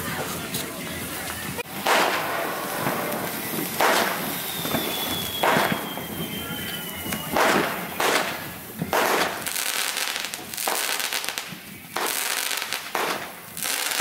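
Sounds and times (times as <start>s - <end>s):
fireworks bangs: 0.0s - 14.0s
fireworks fountains hissing: 0.0s - 14.0s
faint high whistle: 3.2s - 8.2s.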